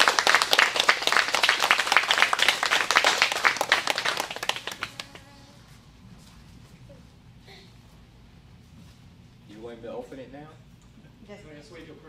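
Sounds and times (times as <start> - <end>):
audience applauding: 0.0 - 5.3.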